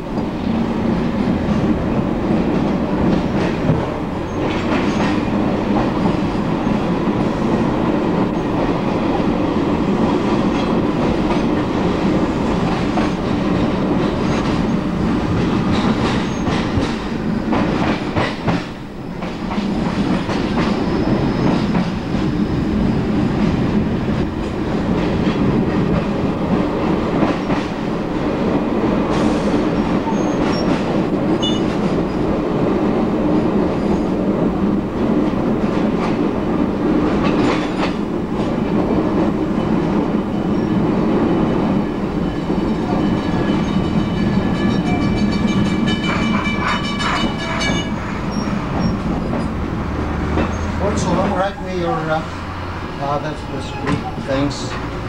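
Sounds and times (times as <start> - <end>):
clickety-clack over rail joints: 0.0 - 55.0
train wheels rumbling on rails: 0.0 - 55.0.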